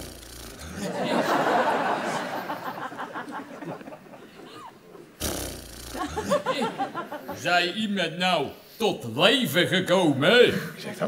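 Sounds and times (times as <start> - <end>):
people laughing: 0.6 - 5.2, 5.9 - 7.5.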